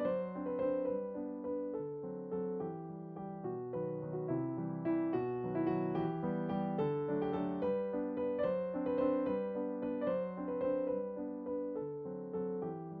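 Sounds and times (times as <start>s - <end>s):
background piano music: 0.0s - 13.0s.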